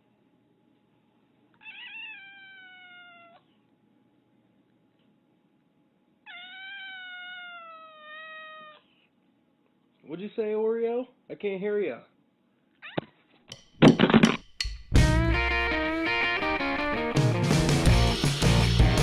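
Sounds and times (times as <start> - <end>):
cat meowing: 1.6 - 3.5, 6.2 - 8.9, 12.8 - 13.2.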